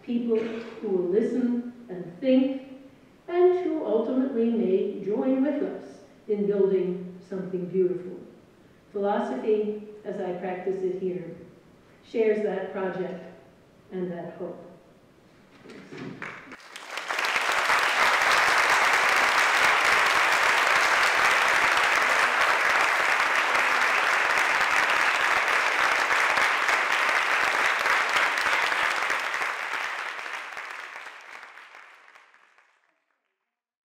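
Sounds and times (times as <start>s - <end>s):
audience applauding: 15.6s - 33.1s.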